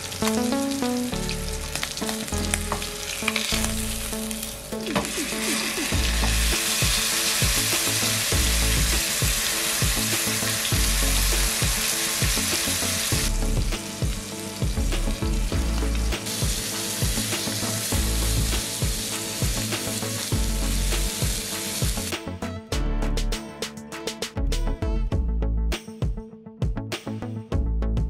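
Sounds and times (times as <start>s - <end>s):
steak sizzling in a frying pan: 5.0s - 22.1s.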